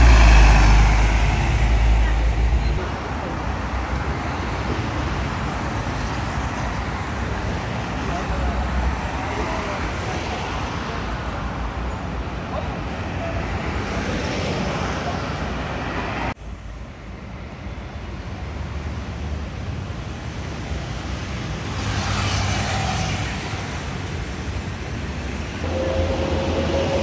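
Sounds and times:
vehicle passing close: 0:00.0 - 0:02.8
road traffic rumble: 0:00.0 - 0:27.0.

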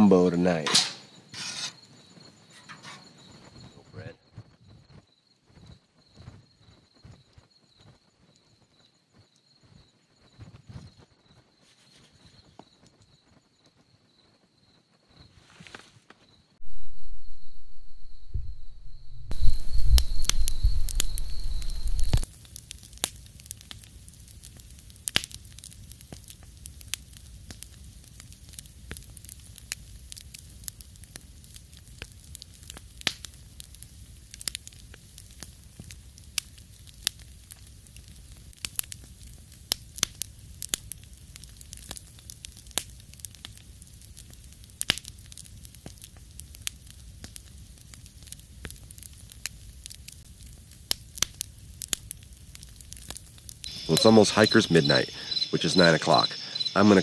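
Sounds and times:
soft hiss of fire: 0:00.0 - 0:57.0
campfire crackling and popping: 0:16.6 - 0:57.0.

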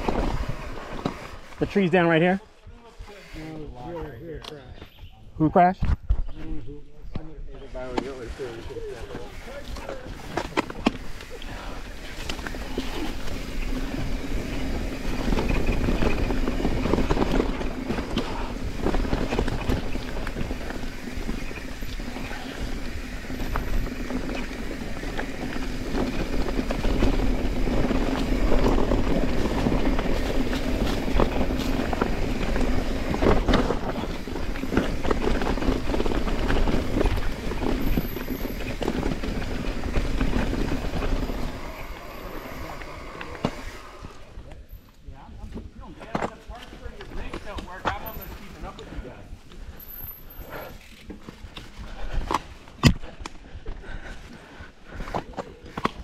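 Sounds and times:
bike tyres rolling on dirt: 0:00.0 - 0:05.0, 0:07.3 - 0:56.0
bike knocks and rattles: 0:12.1 - 0:41.6.

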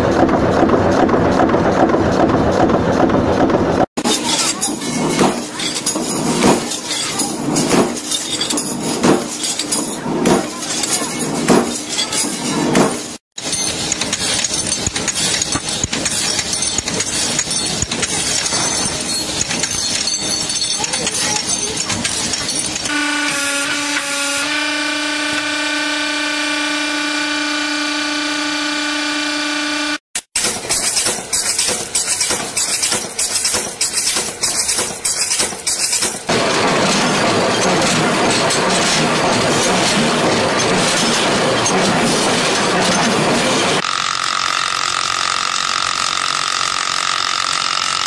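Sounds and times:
dense machine clatter: 0:00.0 - 0:22.9, 0:30.2 - 0:43.9
metal parts clinking: 0:04.0 - 0:22.9, 0:30.4 - 0:43.8
wire brush wheel scratching metal: 0:04.0 - 0:28.9, 0:30.2 - 0:48.0.

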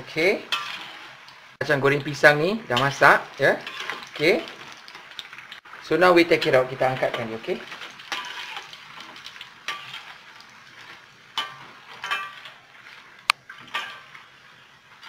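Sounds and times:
food sizzling in hot oil: 0:00.0 - 0:15.0
metal utensils clinking on wok: 0:02.7 - 0:04.9, 0:06.4 - 0:10.2, 0:10.8 - 0:12.7, 0:13.5 - 0:14.3.

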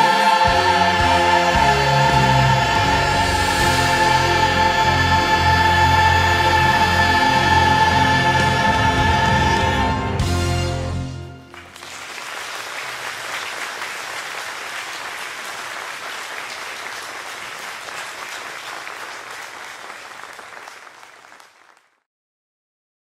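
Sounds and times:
audience applauding: 0:00.0 - 0:10.0, 0:11.2 - 0:22.0
choir chord: 0:00.0 - 0:11.4.

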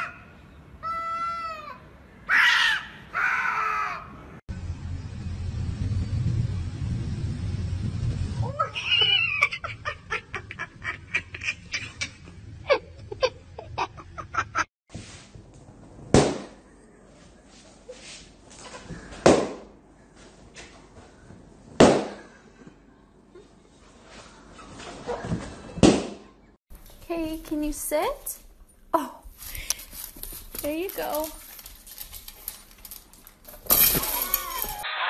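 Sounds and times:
balloons bursting with sharp bangs: 0:16.1 - 0:16.6, 0:21.8 - 0:22.3.

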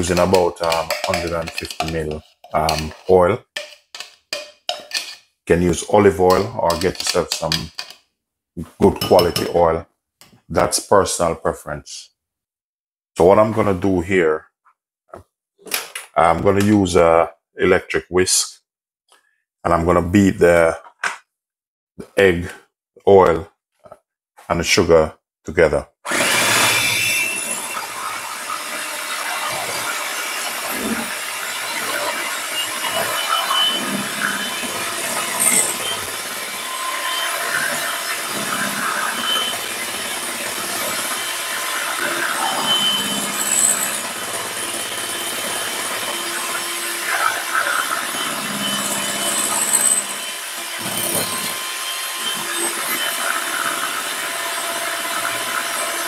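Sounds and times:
electric hand mixer running: 0:26.1 - 0:56.0.

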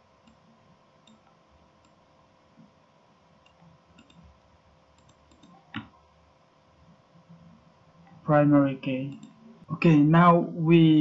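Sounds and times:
faint electrical hum: 0:00.0 - 0:11.0
computer mouse click: 0:01.0 - 0:02.0, 0:03.4 - 0:04.3, 0:04.9 - 0:06.0, 0:09.1 - 0:09.4
faint ticks: 0:03.4 - 0:04.3, 0:04.9 - 0:05.9.

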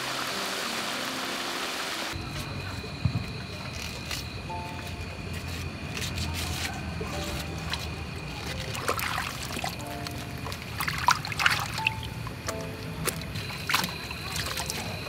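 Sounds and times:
water splashing in metal basin: 0:03.2 - 0:04.4, 0:07.2 - 0:15.0.

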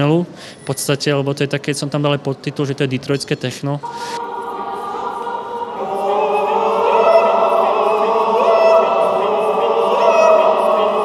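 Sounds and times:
mixed choir singing a cappella: 0:03.8 - 0:11.0.

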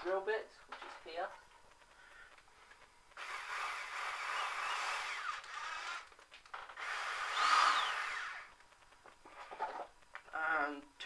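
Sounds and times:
electric drill whining: 0:03.2 - 0:08.6.

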